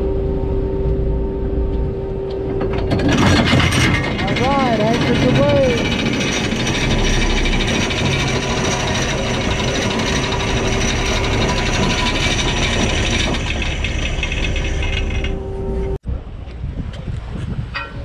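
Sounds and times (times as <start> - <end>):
steady low hum: 0.0 - 16.7
sea along the hull: 0.0 - 18.0
wind buffeting microphone: 0.0 - 18.0
anchor line rattling: 2.4 - 15.5.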